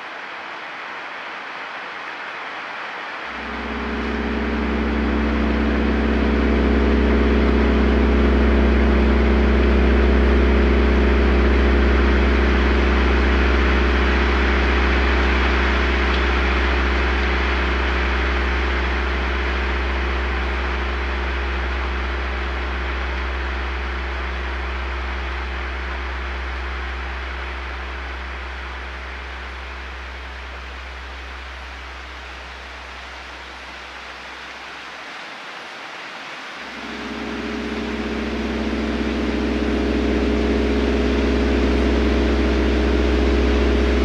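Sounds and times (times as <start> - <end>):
gong drone: 3.3 - 30.7, 36.7 - 44.0.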